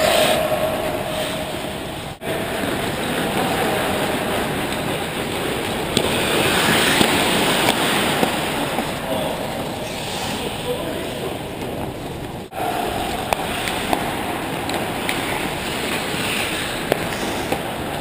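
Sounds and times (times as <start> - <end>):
skates scraping on ice: 2.5 - 18.0.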